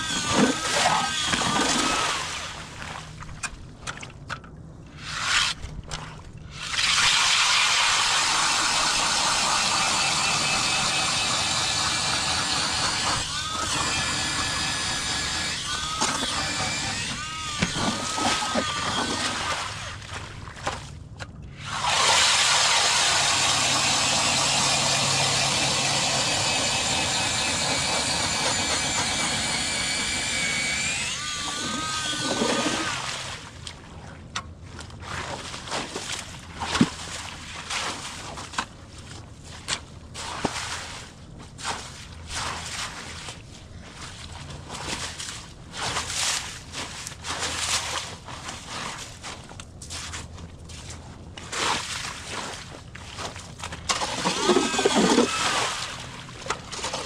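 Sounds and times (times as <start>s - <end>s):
power ice auger motor running: 0.0s - 2.1s, 7.8s - 19.4s, 21.7s - 32.9s, 54.0s - 55.8s.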